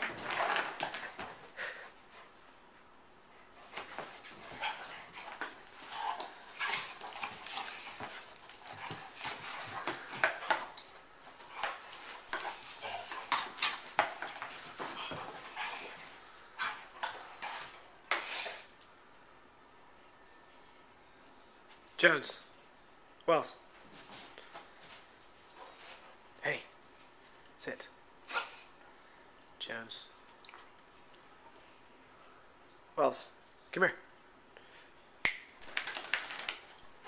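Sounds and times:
dogs snapping jaws: 0:35.2 - 0:36.7.

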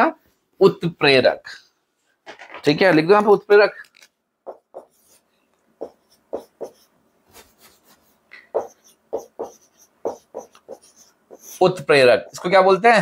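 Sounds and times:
marker writing on whiteboard: 0:04.4 - 0:05.2, 0:05.8 - 0:07.0, 0:08.5 - 0:12.4.

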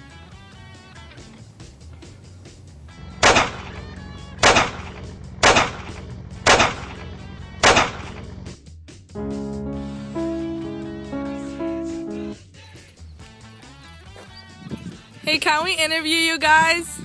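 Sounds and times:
gunshots: 0:03.2 - 0:03.8, 0:04.4 - 0:07.0, 0:07.6 - 0:08.2.

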